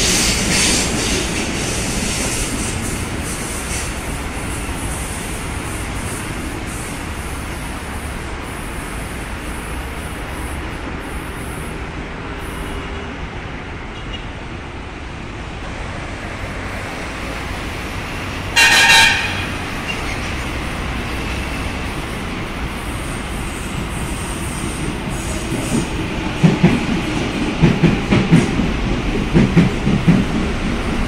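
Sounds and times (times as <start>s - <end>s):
train rumble: 0.0s - 31.0s
train horn blast: 18.5s - 19.9s.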